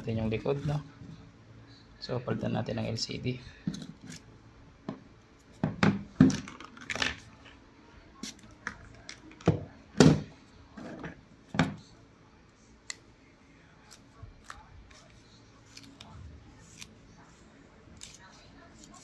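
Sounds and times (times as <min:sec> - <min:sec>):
objects knocking on table: 0:05.6 - 0:06.6.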